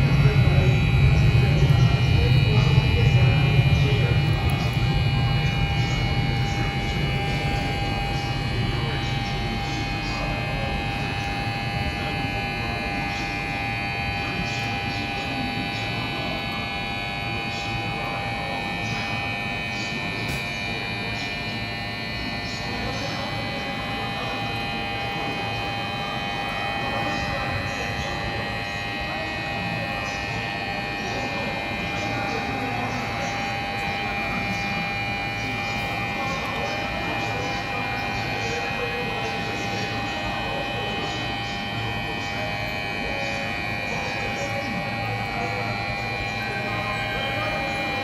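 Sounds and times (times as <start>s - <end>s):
electrical hum with held tones: 0.0s - 48.0s
indistinct voices: 0.0s - 48.0s.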